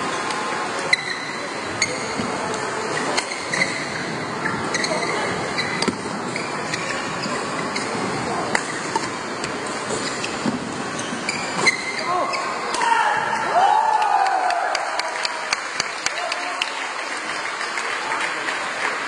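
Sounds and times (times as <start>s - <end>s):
crowd chatter: 0.0s - 19.0s
shoe squeaks on court floor: 0.9s - 2.3s, 2.9s - 8.0s, 9.9s - 12.6s.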